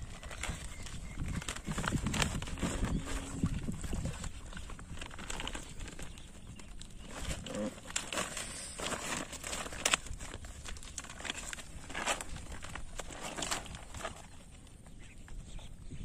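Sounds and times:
plastic sack rustling: 0:00.0 - 0:14.7.

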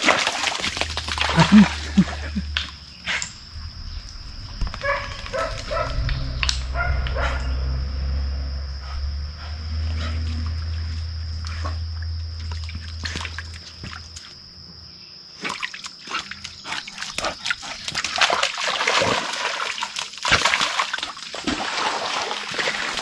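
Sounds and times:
steady low rumble: 0:01.1 - 0:14.6.

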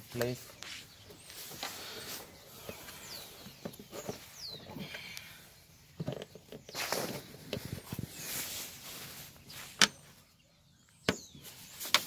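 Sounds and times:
plastic rustling and scraping: 0:00.6 - 0:04.6, 0:06.0 - 0:10.2.

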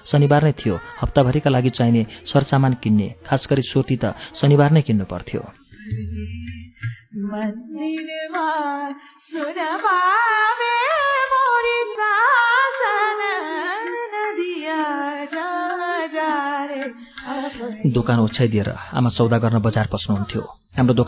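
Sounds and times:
high voice singing slow melody: 0:05.8 - 0:18.0.

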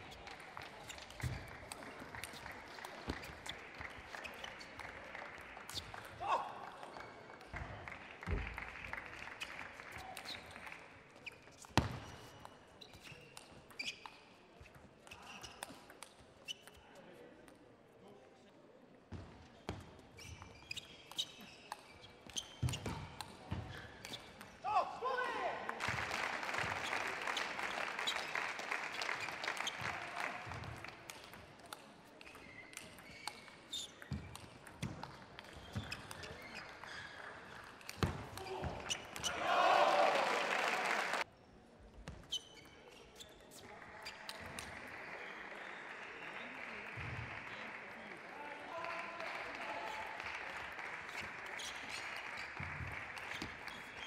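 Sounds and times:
spectators applauding: 0:00.0 - 0:10.9, 0:25.4 - 0:31.2, 0:38.7 - 0:41.3, 0:43.6 - 0:54.0
murmur of hall: 0:00.0 - 0:54.0.

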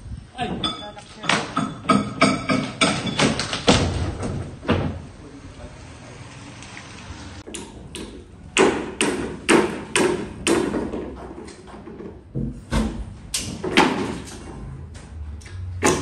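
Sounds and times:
heavy knocks and bangs: 0:01.3 - 0:05.1, 0:08.0 - 0:14.3.

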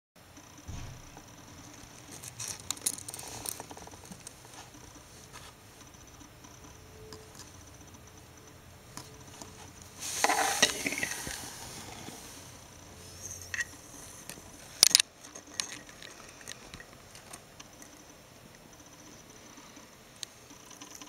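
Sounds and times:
rats scrabbling in bedding: 0:00.7 - 0:08.2, 0:08.9 - 0:18.1.

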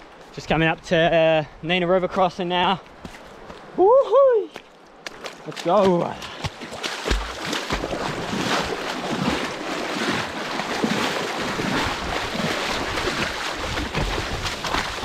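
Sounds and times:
wading splashes in river: 0:04.5 - 0:15.0.

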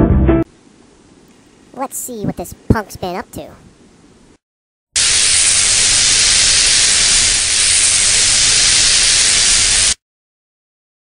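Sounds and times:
loud electric hiss: 0:05.0 - 0:10.0.

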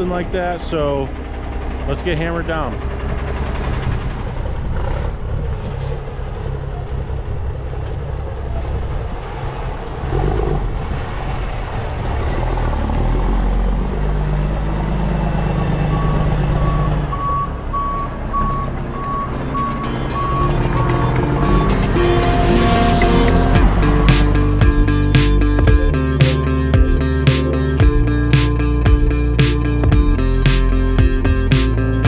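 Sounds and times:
diesel engine running: 0:00.0 - 0:32.0
backup alarm beeping: 0:15.9 - 0:23.8.

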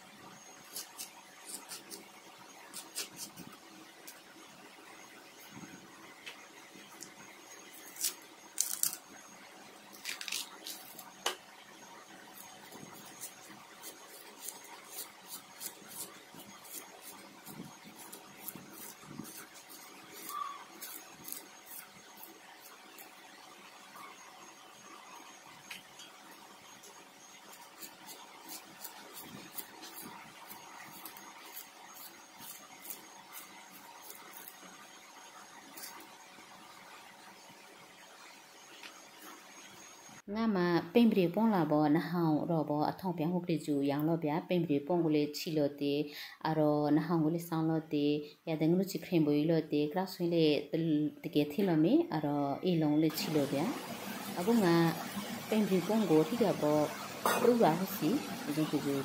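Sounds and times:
knife scraping bamboo: 0:00.6 - 0:04.2, 0:07.7 - 0:09.1, 0:09.9 - 0:11.4, 0:12.2 - 0:23.2, 0:27.4 - 0:36.2.

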